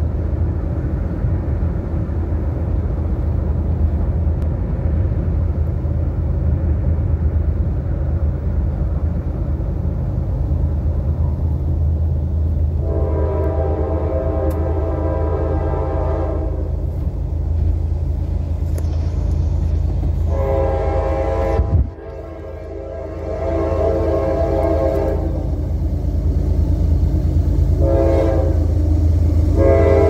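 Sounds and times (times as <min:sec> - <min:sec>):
locomotive air horn: 0:12.8 - 0:16.8, 0:20.2 - 0:25.6, 0:27.7 - 0:30.0
car driving rumble: 0:16.6 - 0:20.5.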